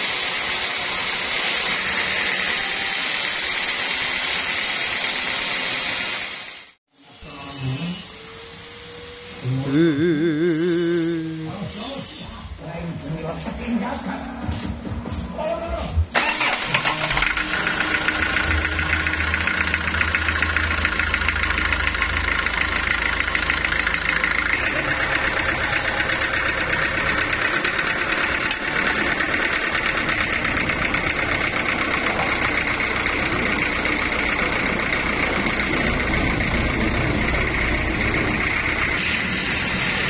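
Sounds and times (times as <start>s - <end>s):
stationary engine running: 16.2s - 40.0s.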